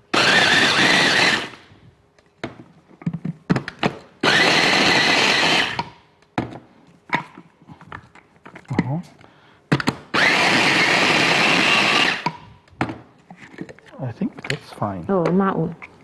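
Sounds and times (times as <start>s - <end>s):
electric chopper grinding bread: 0.0s - 1.8s, 4.2s - 6.0s, 9.8s - 12.5s.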